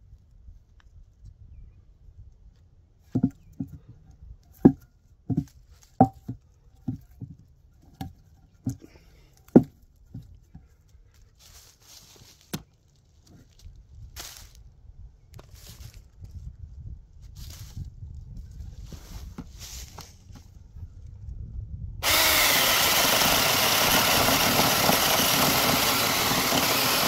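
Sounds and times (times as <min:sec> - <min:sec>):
rustling in dry leaves: 0:11.0 - 0:14.8, 0:15.4 - 0:16.5, 0:17.2 - 0:20.6.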